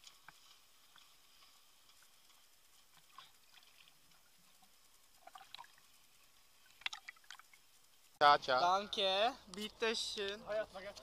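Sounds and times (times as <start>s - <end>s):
small water splashes: 0.0s - 7.9s
shallow water trickling: 0.0s - 10.9s.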